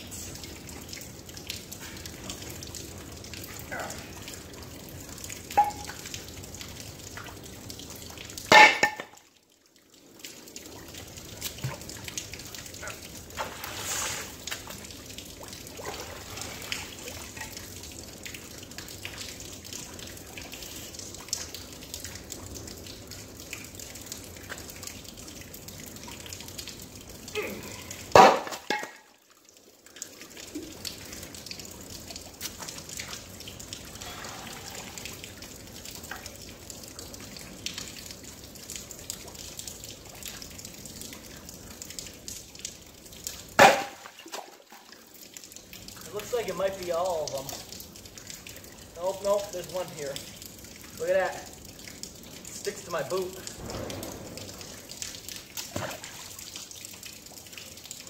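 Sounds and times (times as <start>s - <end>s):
river water trickling: 0.0s - 58.0s
metal plate clanking on rocks: 8.5s - 9.1s.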